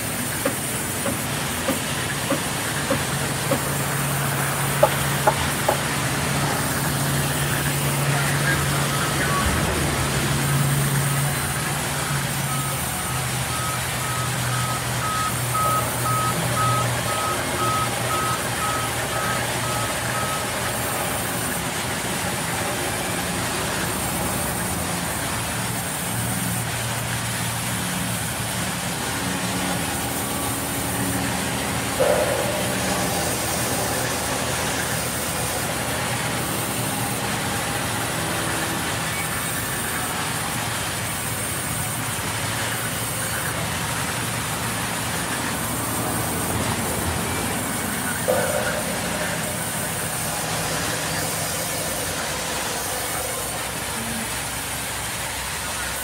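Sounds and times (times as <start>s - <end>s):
band saw cutting wood: 0.0s - 12.6s
rapid high beeping: 10.5s - 22.7s, 31.9s - 40.0s, 47.2s - 54.9s.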